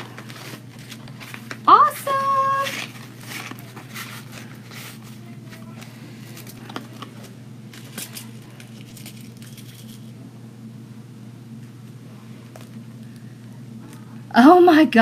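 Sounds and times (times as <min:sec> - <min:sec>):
ribbon rustling and crinkling: 0:00.0 - 0:10.1
steady low hum: 0:00.0 - 0:15.0.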